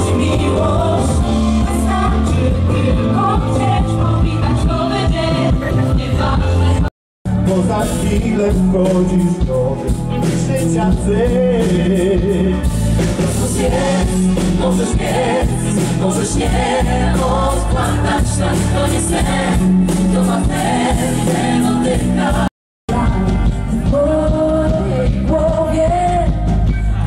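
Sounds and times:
mixed voices singing together: 0:00.0 - 0:06.9, 0:13.2 - 0:23.1
band playing: 0:00.0 - 0:27.0.

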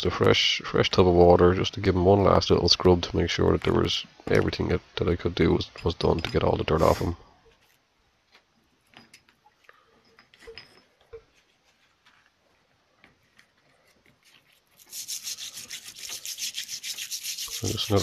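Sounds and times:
wire brush scrubbing: 0:14.2 - 0:18.0.

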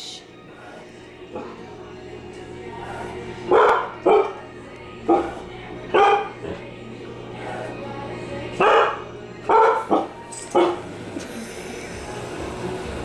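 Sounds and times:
washing machine hum: 0:00.0 - 0:13.0
dog barking: 0:03.5 - 0:04.4, 0:05.1 - 0:06.4, 0:08.6 - 0:10.8.

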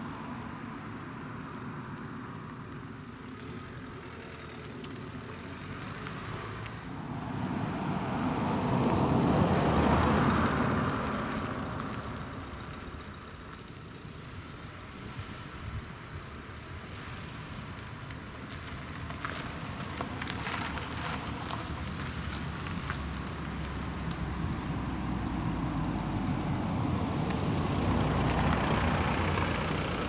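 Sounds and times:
car passing by: 0:03.6 - 0:13.2, 0:16.6 - 0:30.0.

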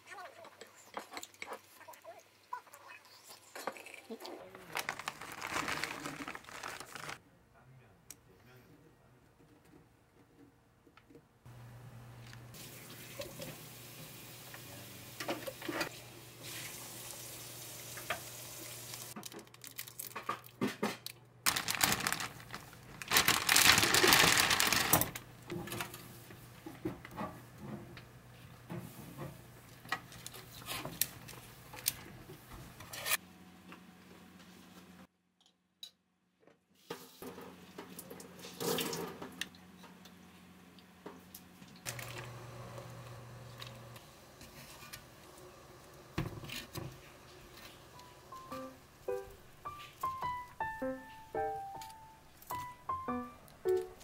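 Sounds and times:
water running from a tap: 0:12.5 - 0:19.2.

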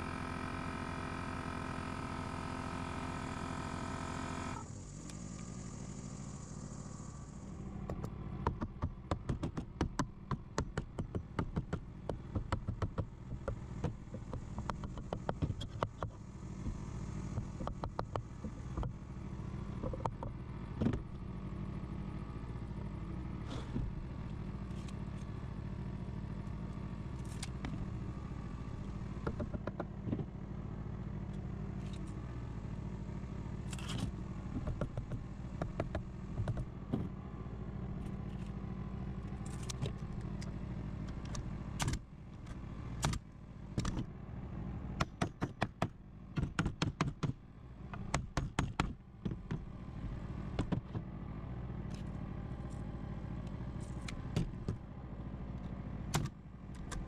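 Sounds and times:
steady low hum: 0:04.5 - 0:09.0
hammer striking wooden frame: 0:45.0 - 0:49.6.

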